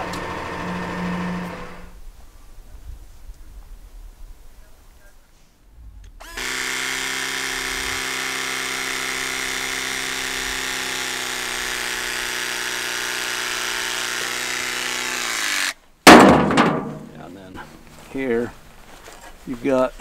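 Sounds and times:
hydraulic cable cutter motor: 0:00.0 - 0:01.9, 0:06.2 - 0:15.8.

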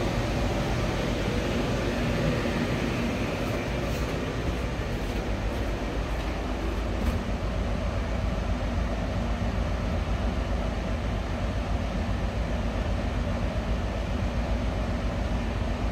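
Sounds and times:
ship engine rumble: 0:00.0 - 0:09.0
faint steady hum: 0:00.0 - 0:15.9.

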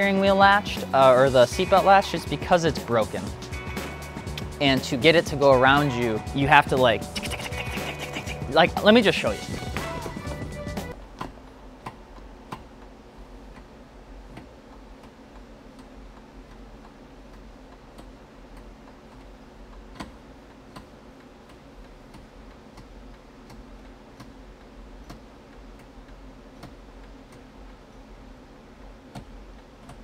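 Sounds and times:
steady ticking: 0:00.4 - 0:11.0.

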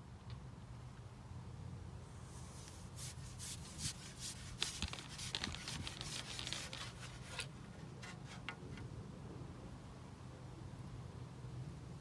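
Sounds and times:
fishing pole scraping: 0:02.3 - 0:08.8.

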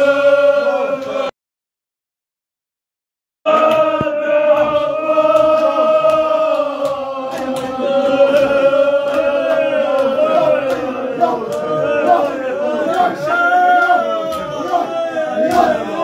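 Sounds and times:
men chanting together: 0:00.0 - 0:01.3, 0:03.5 - 0:16.0
sharp slaps: 0:03.6 - 0:16.0.

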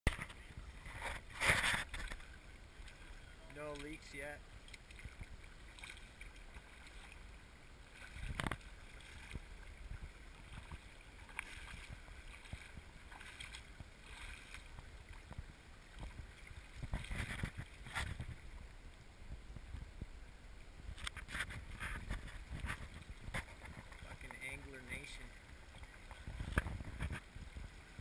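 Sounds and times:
water splashing around legs: 0:00.1 - 0:18.6, 0:21.0 - 0:28.0
gravelly stream running: 0:00.1 - 0:28.0.

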